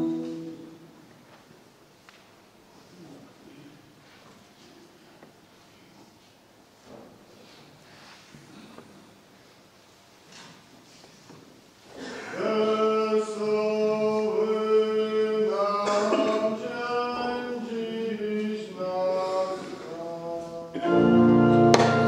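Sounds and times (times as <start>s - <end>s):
voices singing a hymn: 12.0s - 22.0s.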